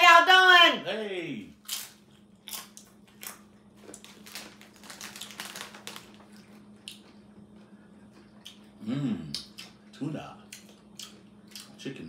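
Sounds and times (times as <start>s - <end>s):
faint steady hum: 0.0s - 12.0s
tortilla chip crunching: 1.6s - 7.3s.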